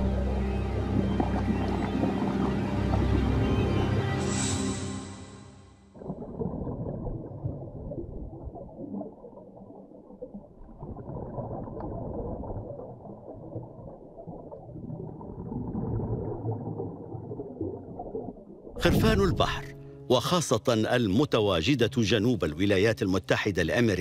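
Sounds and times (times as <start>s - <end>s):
muffled underwater rush: 0.0s - 4.1s, 6.0s - 19.9s.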